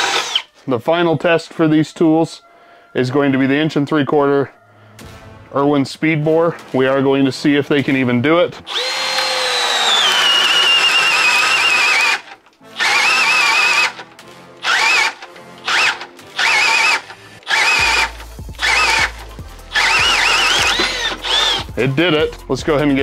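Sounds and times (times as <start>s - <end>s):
drill motor whining: 0.0s - 0.6s, 8.7s - 14.0s, 14.6s - 21.8s.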